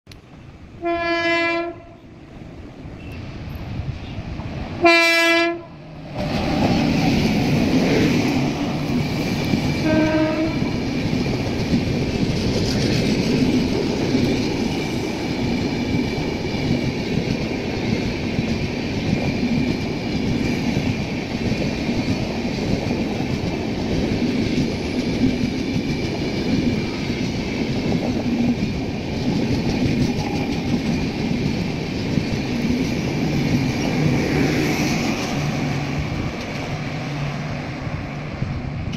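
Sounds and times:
train wheels rumbling on rail: 0:00.1 - 0:38.9
train horn blast: 0:00.8 - 0:02.1, 0:04.8 - 0:05.8, 0:09.8 - 0:10.7.

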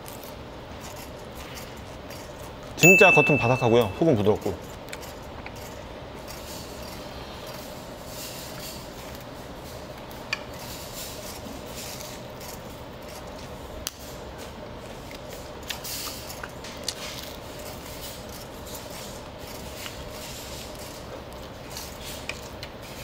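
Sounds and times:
crispy food chewing: 0:00.0 - 0:02.8, 0:03.9 - 0:23.0
steady low hum: 0:00.0 - 0:23.0.

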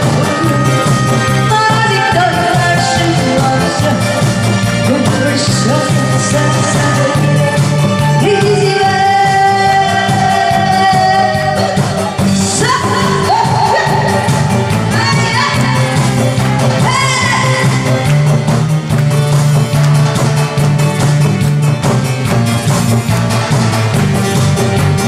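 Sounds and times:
woman singing into microphone: 0:00.0 - 0:16.1, 0:16.8 - 0:18.1
backing track with steady beat: 0:00.0 - 0:25.0.

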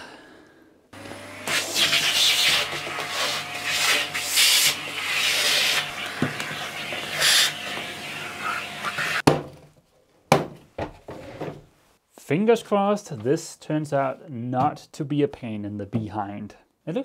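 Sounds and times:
vacuum cleaner running: 0:01.0 - 0:09.2
hose nozzle rubbing and sucking: 0:01.5 - 0:09.2.

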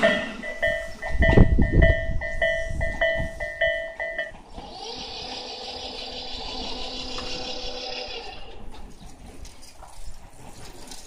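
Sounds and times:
level crossing bell clanging: 0:00.0 - 0:04.5
high whine with held tones: 0:00.0 - 0:08.7
train wheels rumbling: 0:00.0 - 0:11.0.

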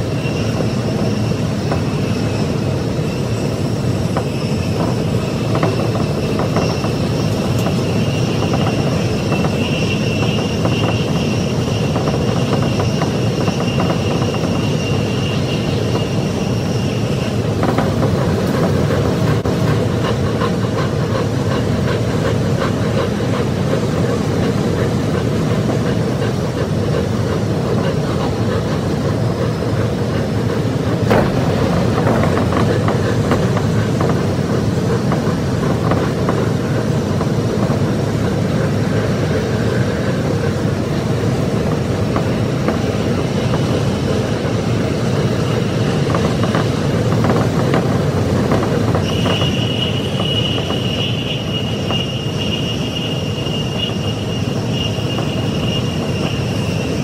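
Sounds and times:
steady high whine: 0:00.0 - 0:57.0
train wheels on rails: 0:00.0 - 0:57.0
sharp knock: 0:31.1 - 0:32.4.

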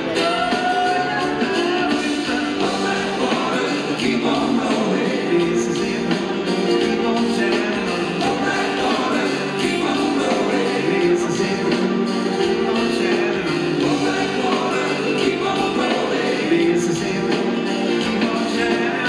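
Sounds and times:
harmony voices: 0:00.0 - 0:19.0
live rock band playing: 0:00.0 - 0:19.0
person singing lead vocals: 0:00.0 - 0:19.0.

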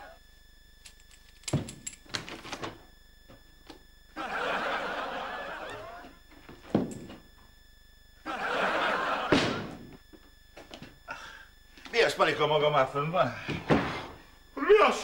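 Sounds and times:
audience laughter: 0:04.2 - 0:06.2, 0:08.2 - 0:09.9
sharp thump: 0:09.3 - 0:09.9.

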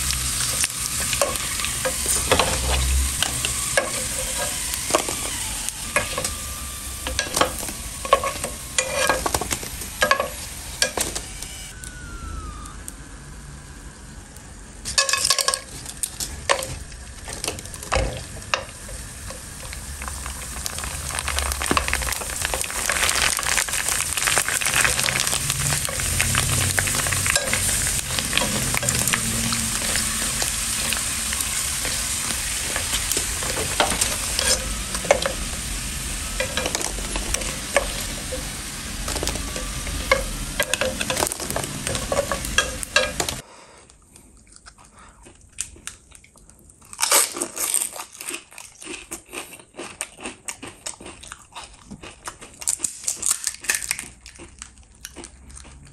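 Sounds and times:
hot oil sizzling: 0:00.0 - 0:43.4.

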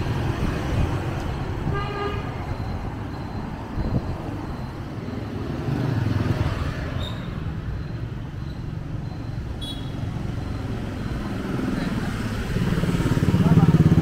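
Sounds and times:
car and motorbikes passing: 0:00.0 - 0:14.0
brief high squeak: 0:07.0 - 0:07.4.

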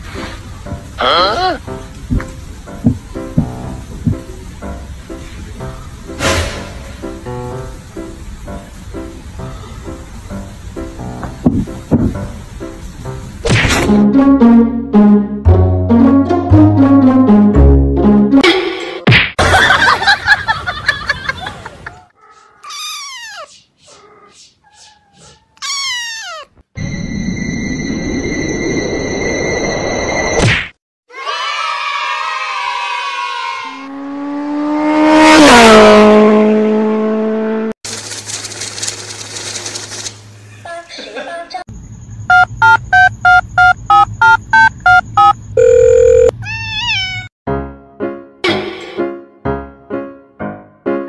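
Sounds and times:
piano music: 0:00.2 - 0:18.4, 0:47.5 - 0:51.0
kitten meowing: 0:22.6 - 0:23.5, 0:25.2 - 0:26.6, 0:46.2 - 0:47.3
rising and falling call: 0:22.6 - 0:26.5
long held electronic tone: 0:26.8 - 0:30.4, 0:44.9 - 0:46.3
electronic beeps in a tune: 0:42.3 - 0:46.3.

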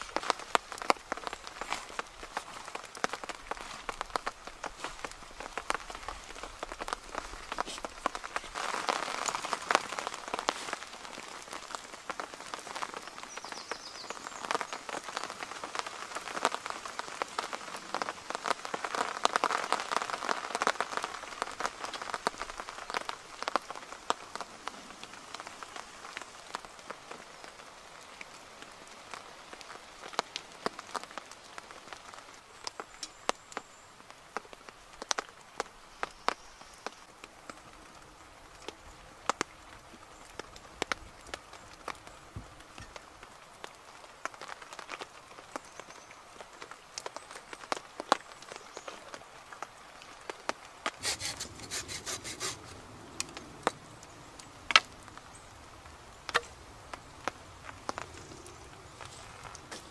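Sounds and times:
tarp rustling and crinkling: 0:00.0 - 0:27.6, 0:46.4 - 0:59.9
raindrops ticking on tarp: 0:00.0 - 0:59.9.

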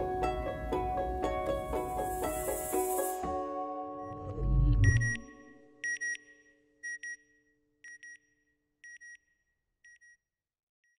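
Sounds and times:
short high electronic beeps: 0:04.1 - 0:05.4.

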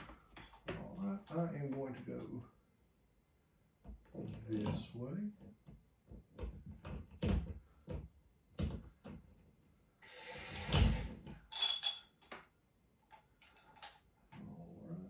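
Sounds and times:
impact driver whirring: 0:10.0 - 0:11.2.

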